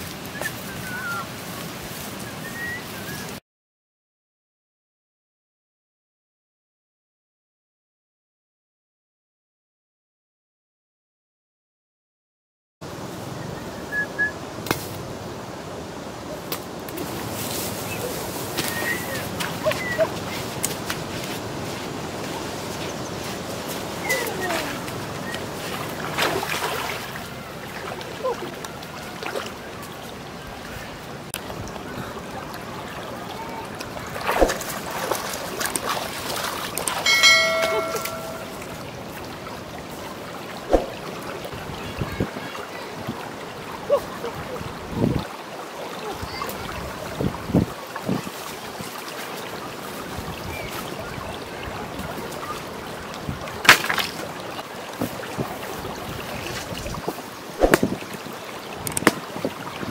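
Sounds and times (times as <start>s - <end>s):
open-air background noise: 0.0s - 3.4s, 12.8s - 59.9s
stream rushing: 0.0s - 3.4s, 12.8s - 59.9s
bell-like chime: 37.0s - 38.6s
sharp smack: 57.6s - 58.0s.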